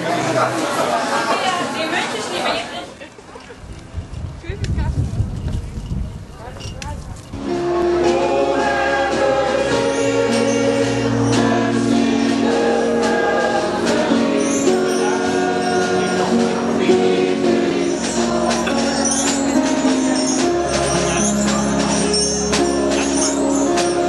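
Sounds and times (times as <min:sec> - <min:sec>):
mixed choir singing: 0:07.4 - 0:24.0
light percussion strokes: 0:17.7 - 0:24.0.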